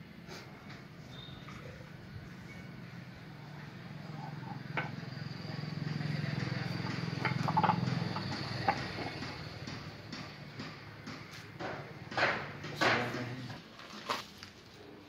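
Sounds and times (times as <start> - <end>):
low engine-like drone: 0.9 - 11.0.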